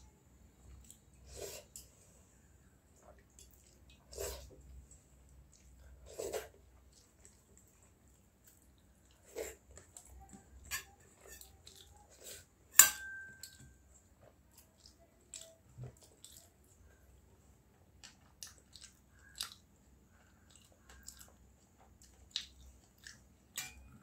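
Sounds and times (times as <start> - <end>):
chewing and mouth sounds: 3.0 - 12.5, 14.2 - 17.1, 17.8 - 23.6
fingers in steel bowls: 9.5 - 13.9, 23.6 - 24.0
sharp metal clink: 12.8 - 13.6.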